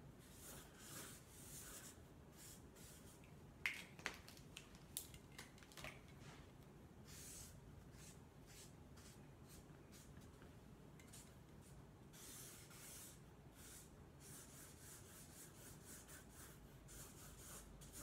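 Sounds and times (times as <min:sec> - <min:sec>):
marker scratching on paper: 0:00.3 - 0:03.2, 0:07.1 - 0:10.1, 0:12.1 - 0:18.0.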